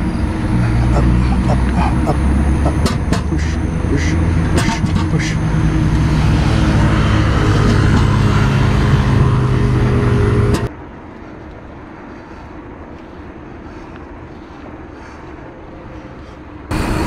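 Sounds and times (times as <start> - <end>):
motor vehicle engine hum: 0.0 - 17.0
bicycle rolling on concrete: 5.4 - 17.0.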